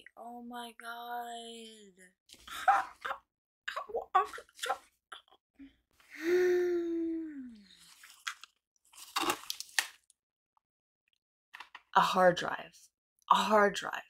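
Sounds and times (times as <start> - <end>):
woman's wordless vocal sound: 5.6 - 7.7
packaging crinkling and clicking: 8.1 - 10.1.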